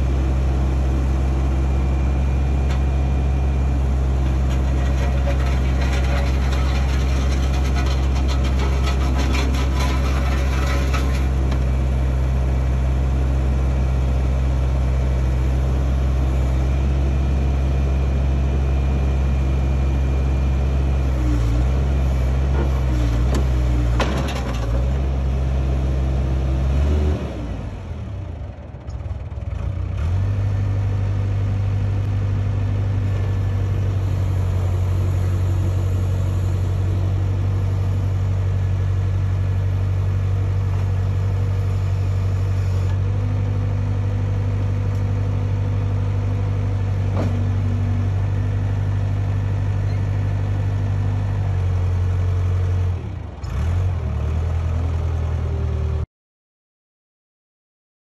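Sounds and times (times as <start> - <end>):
diesel engine revving: 53.4 - 55.0.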